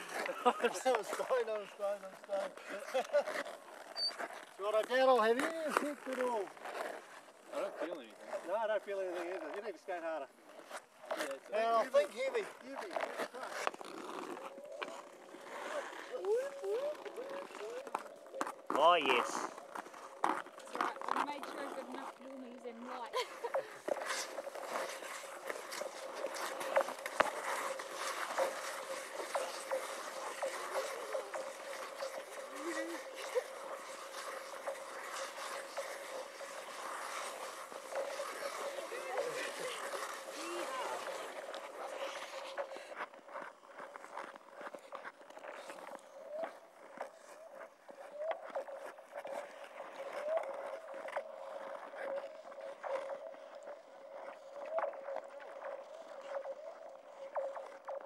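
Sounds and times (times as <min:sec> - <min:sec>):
ice skates scraping on ice: 0:00.0 - 0:58.0
ice ringing hum: 0:23.1 - 0:43.7.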